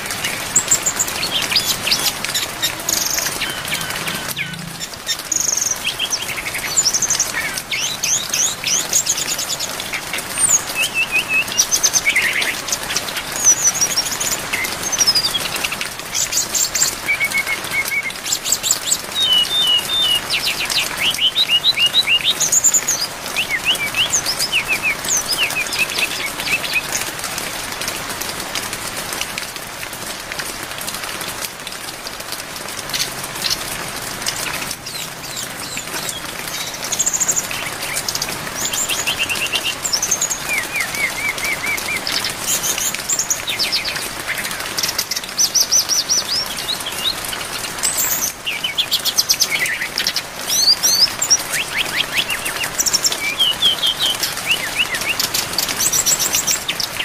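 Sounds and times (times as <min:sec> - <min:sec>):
rain hissing: 0:00.0 - 0:57.0
bird singing whistled trills: 0:19.1 - 0:26.9, 0:48.0 - 0:57.0.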